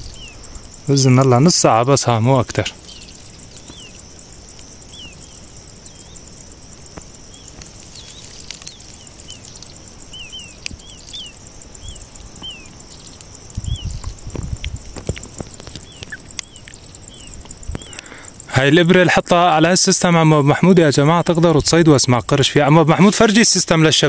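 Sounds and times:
bird chirping: 0.0 - 19.0
insects trilling: 0.0 - 24.0.

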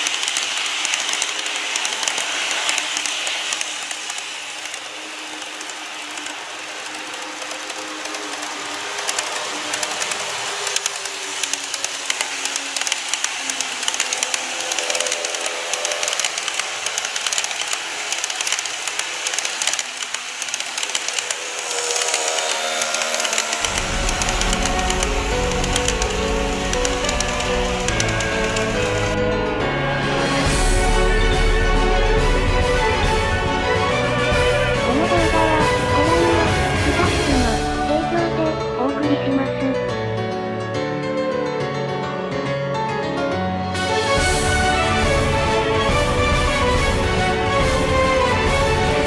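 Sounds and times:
model train wheels clicking: 0.0 - 29.2
music: 0.0 - 49.0.

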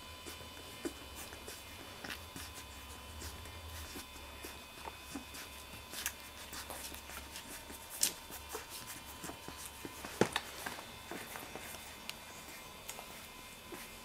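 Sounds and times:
puppies suckling: 0.0 - 14.0.

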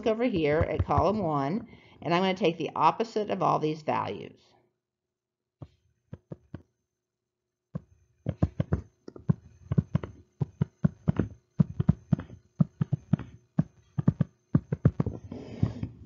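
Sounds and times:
stylus tapping on screen: 0.0 - 1.5, 5.6 - 6.7, 7.8 - 16.0.

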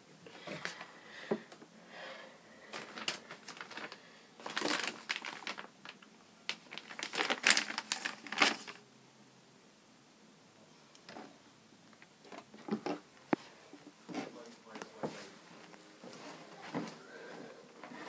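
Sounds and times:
close rustling and crinkling: 2.7 - 8.8.

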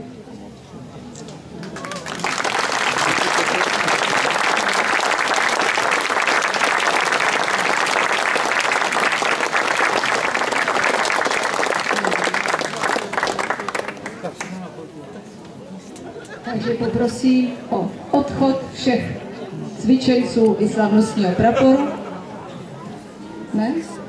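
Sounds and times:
crowd applauding: 1.6 - 14.7.

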